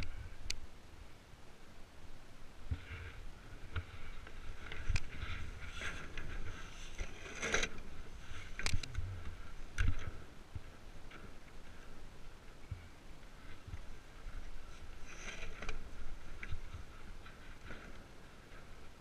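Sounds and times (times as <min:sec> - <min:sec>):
wind rumble on microphone: 0:00.0 - 0:19.0
blades scraping over ice: 0:03.9 - 0:08.6.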